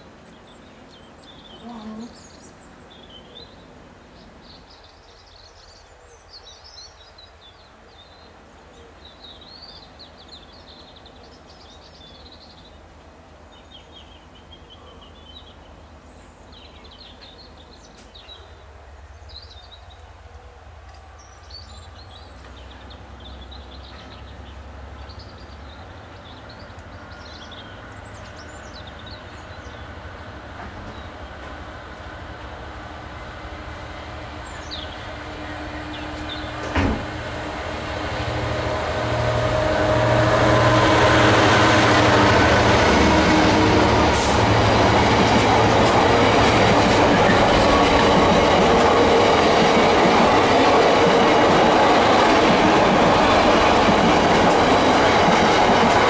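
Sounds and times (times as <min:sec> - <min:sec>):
diesel locomotive rumble: 0:21.6 - 0:56.0.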